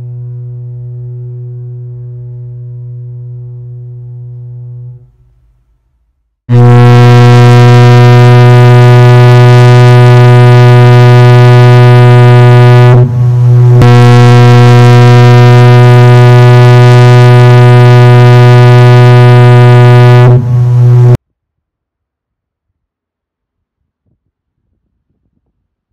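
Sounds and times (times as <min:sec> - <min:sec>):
foghorn long low blast: 0:00.0 - 0:05.2, 0:06.5 - 0:21.2.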